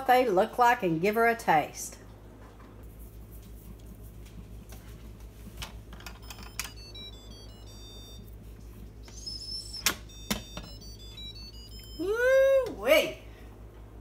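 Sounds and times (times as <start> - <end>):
faint high electronic beeps: 6.2 - 8.4, 9.0 - 12.3.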